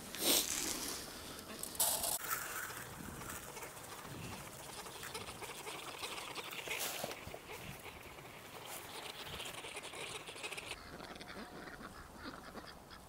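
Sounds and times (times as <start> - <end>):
ducks making low calls: 1.2 - 13.0.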